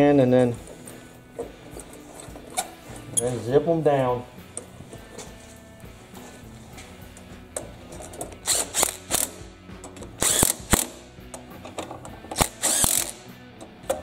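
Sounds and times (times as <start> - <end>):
socket ratchet clicking: 8.0 - 14.0.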